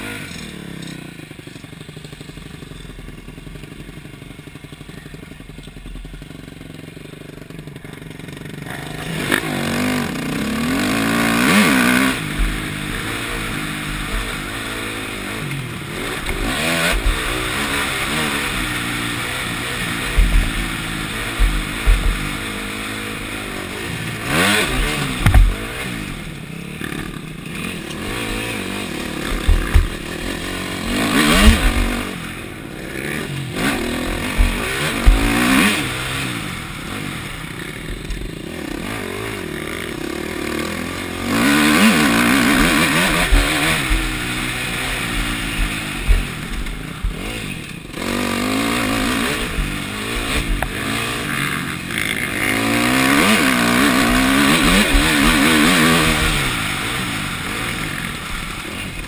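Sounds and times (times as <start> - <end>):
motorbike engine revving: 0.0 - 59.0
suspension thuds: 12.1 - 14.6, 19.9 - 23.3, 24.5 - 26.2, 27.7 - 32.2, 33.6 - 35.6, 41.9 - 47.8.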